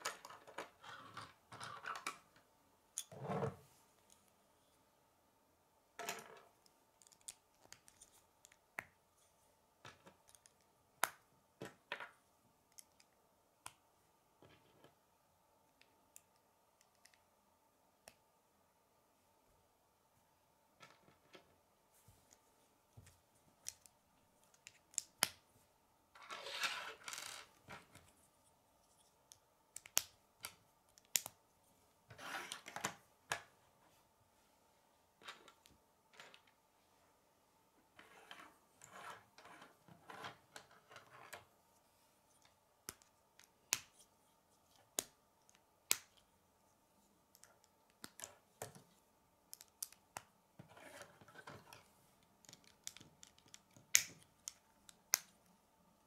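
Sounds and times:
plastic pieces snapping together: 52.4s - 55.4s.

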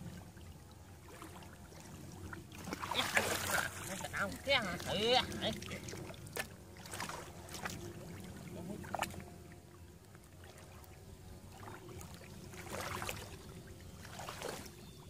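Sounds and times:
muddy water splashing and sloshing: 0.0s - 15.0s.

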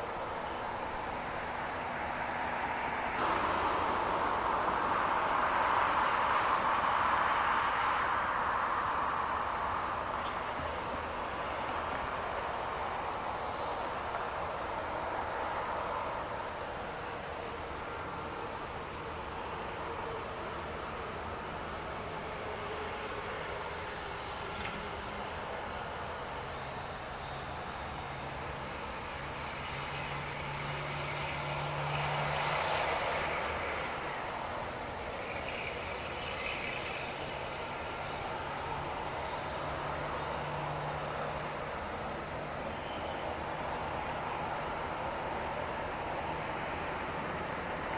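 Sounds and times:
insects chirping trill: 0.0s - 47.9s
low engine hum: 0.2s - 15.2s
rushing noise: 2.6s - 10.2s.

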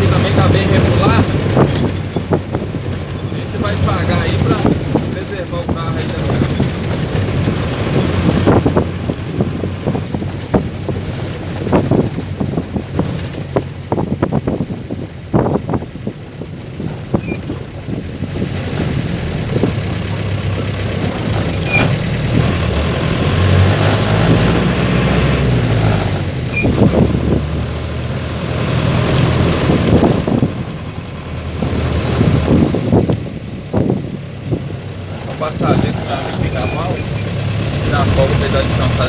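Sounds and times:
bus diesel engine running: 0.0s - 39.0s
body knocks and rattles: 0.5s - 22.6s.

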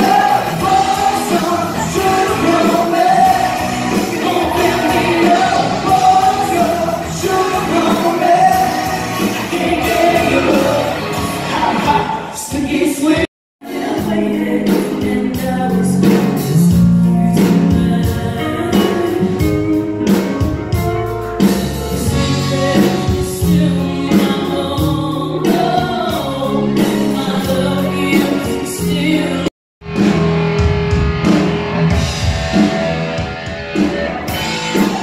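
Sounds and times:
voices singing: 0.0s - 16.5s
live band playing: 0.0s - 35.0s.

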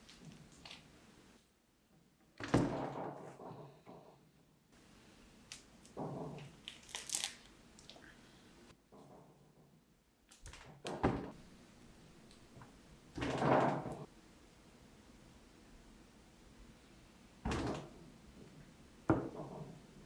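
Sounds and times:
clay rustling: 3.1s - 9.7s.

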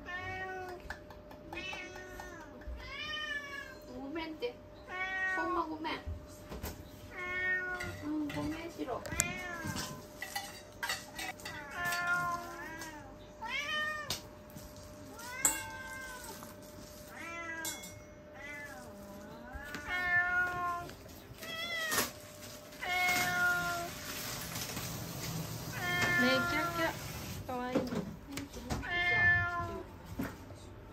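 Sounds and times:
cats meowing: 0.0s - 3.9s, 4.8s - 5.7s, 7.1s - 10.2s, 11.4s - 14.3s, 15.0s - 24.4s, 25.6s - 27.1s, 28.7s - 29.9s.

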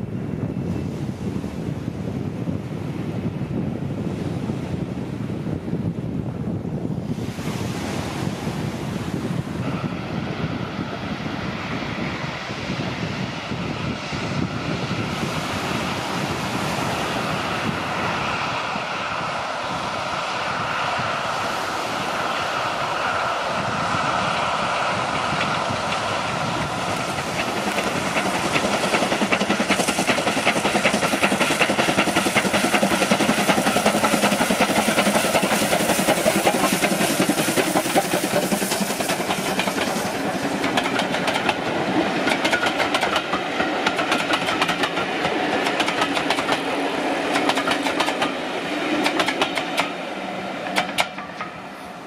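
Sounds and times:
steam locomotive chuffing: 9.0s - 52.0s
train wheels clattering over rails: 13.5s - 52.0s.

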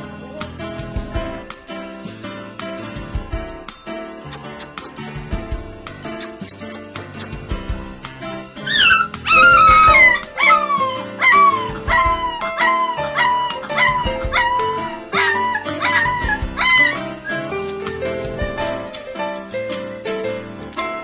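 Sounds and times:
background music: 0.0s - 21.0s
puppy howling and crying: 8.6s - 18.2s.

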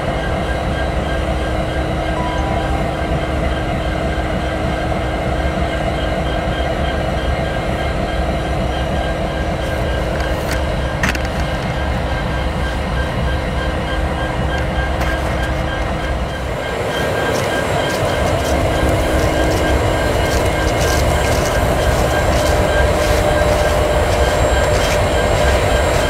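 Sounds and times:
locomotive engine rumble: 14.3s - 26.0s
steady whine: 15.8s - 26.0s.

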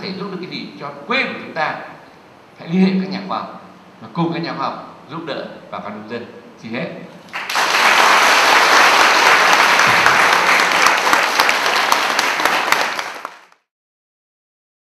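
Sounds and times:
audience applauding: 7.3s - 13.7s.

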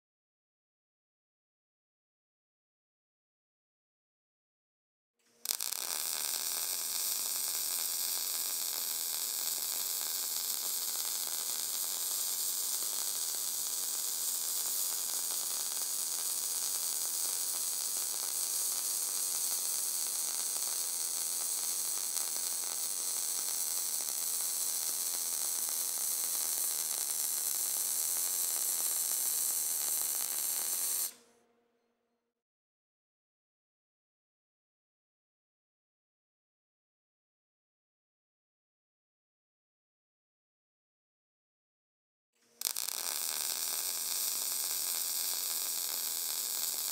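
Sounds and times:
welding arc hissing: 5.5s - 31.2s, 42.6s - 46.9s.

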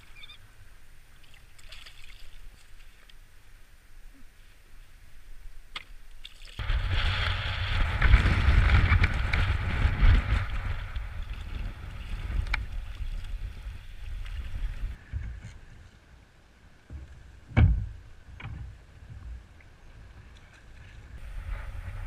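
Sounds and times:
water splashing: 1.1s - 3.2s, 5.7s - 15.0s
wind buffeting microphone: 6.6s - 15.8s, 16.9s - 22.0s.

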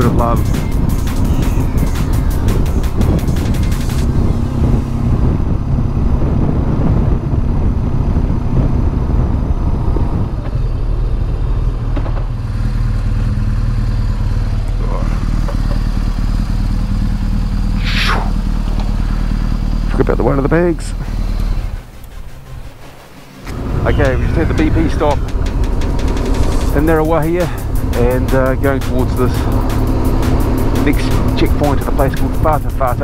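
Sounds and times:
motorcycle engine running: 0.0s - 33.0s
high-pitched sweep: 17.8s - 18.5s.

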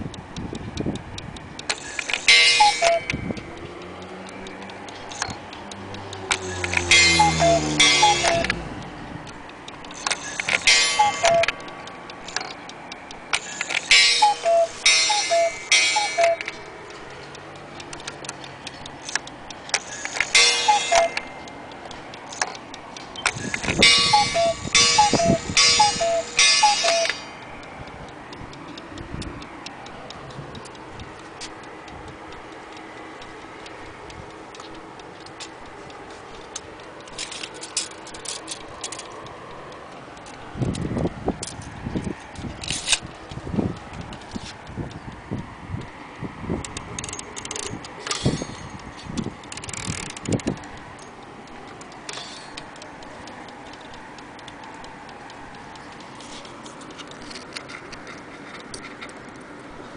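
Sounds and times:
clock ticking: 0.0s - 59.9s
cuckoo clock call: 1.6s - 9.0s, 9.7s - 40.3s.

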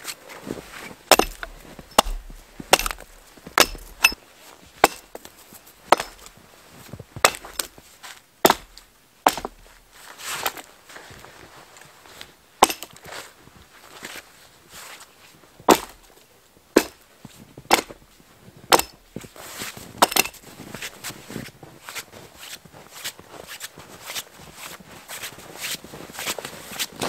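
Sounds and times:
axe chopping wood: 1.1s - 4.2s, 4.8s - 5.2s, 5.9s - 6.3s, 7.2s - 7.8s, 8.4s - 9.7s, 12.6s - 12.9s, 15.7s - 16.0s, 16.8s - 17.0s, 17.7s - 18.0s, 18.7s - 19.0s, 20.0s - 20.4s.

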